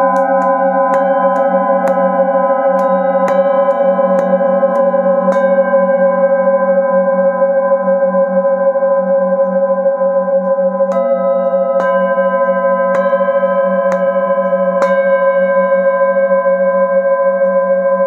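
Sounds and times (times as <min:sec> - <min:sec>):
singing bowl tapped with mallet: 0:00.0 - 0:05.8, 0:10.9 - 0:15.1
singing bowl ringing: 0:00.0 - 0:18.0.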